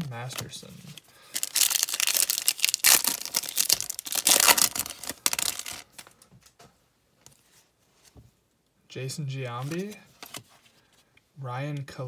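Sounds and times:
cards rustling: 0.0s - 6.2s, 9.5s - 11.0s
plastic wrapper crinkling and tearing: 0.1s - 6.2s.

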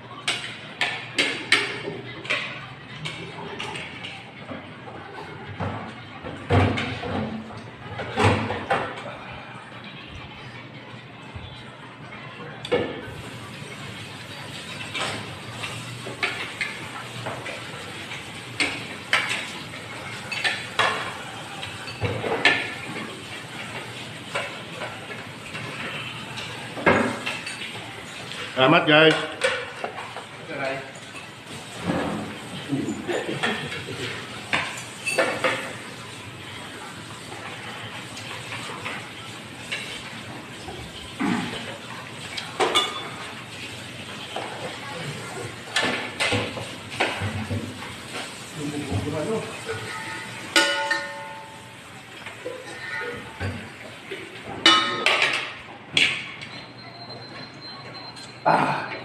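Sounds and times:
cutlery clinking on plates: 0.1s - 4.6s, 14.5s - 28.5s, 32.9s - 35.9s, 39.7s - 43.4s, 45.7s - 47.7s, 49.6s - 56.6s.

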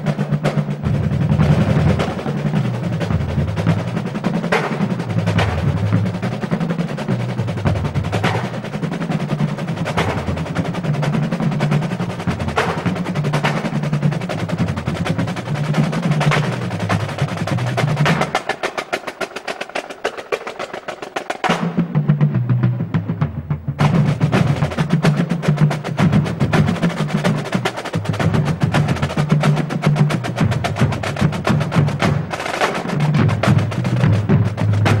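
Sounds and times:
bass drum beat: 0.0s - 18.3s, 21.8s - 35.0s
snare drums rapid strokes: 0.0s - 35.0s.

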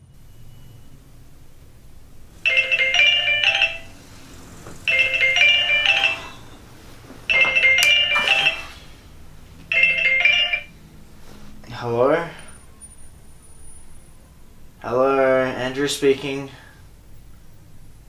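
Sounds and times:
phone ringtone chime: 2.4s - 9.0s, 9.7s - 10.8s.

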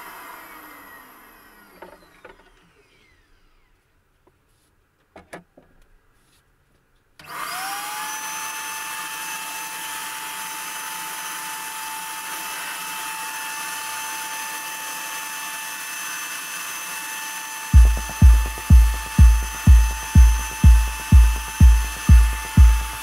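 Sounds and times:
paint sprayer turbine whine: 7.3s - 23.0s.

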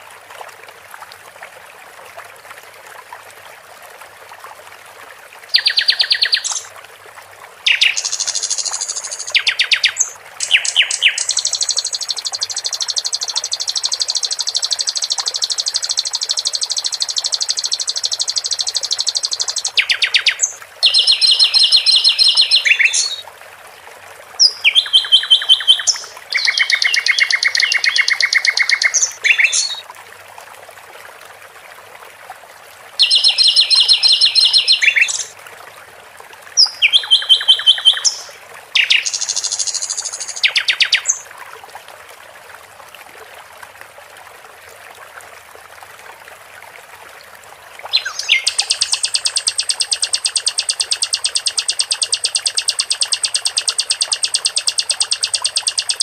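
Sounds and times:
nightingale singing: 5.6s - 6.7s, 7.7s - 23.2s, 24.4s - 29.8s, 33.0s - 35.3s, 36.6s - 41.2s, 47.9s - 56.0s.

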